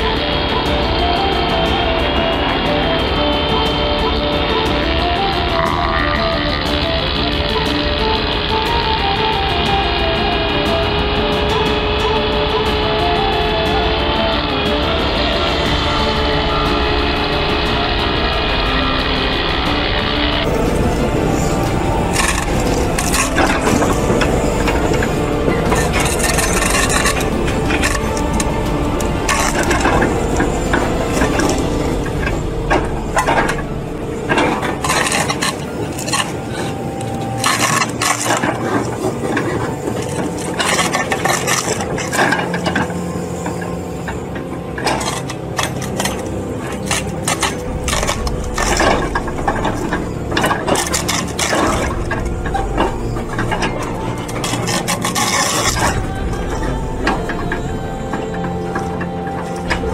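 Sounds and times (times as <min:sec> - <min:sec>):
mechanical rattling: 0:00.0 - 0:59.9
wood cracking and splintering: 0:19.9 - 0:59.9.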